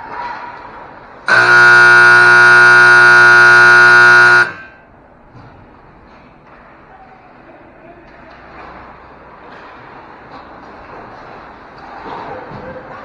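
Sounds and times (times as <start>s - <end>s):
scoreboard buzzer blast: 1.3s - 4.8s.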